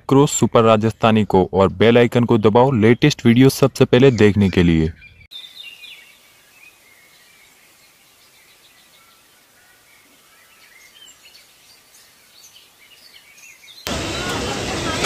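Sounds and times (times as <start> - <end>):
steady outdoor hiss: 0.0 - 15.0
bird chirps: 4.0 - 13.9.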